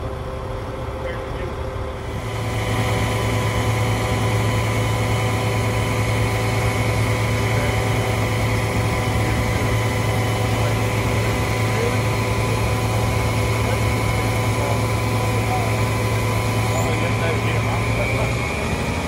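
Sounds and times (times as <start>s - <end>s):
diesel engine droning: 0.0s - 19.0s
thin steady whining tones: 0.0s - 19.0s.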